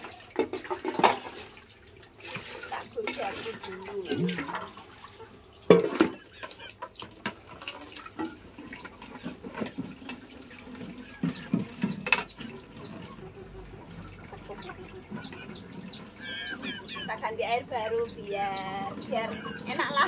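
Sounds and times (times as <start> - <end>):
steamer pot knocking and clattering: 0.0 - 1.4, 5.7 - 6.2, 11.2 - 12.8
water splashing and pouring: 0.0 - 17.4
small birds chirping: 0.0 - 20.0.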